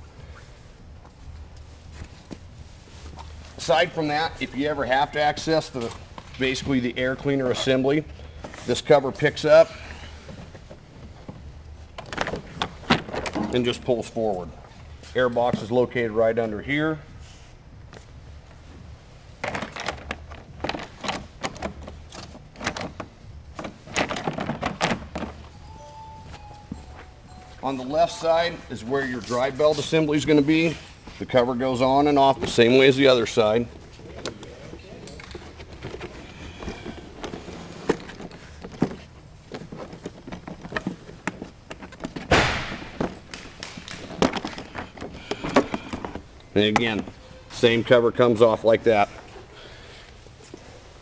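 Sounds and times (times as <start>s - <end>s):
plastic panels clicking and knocking: 19.4s - 25.4s.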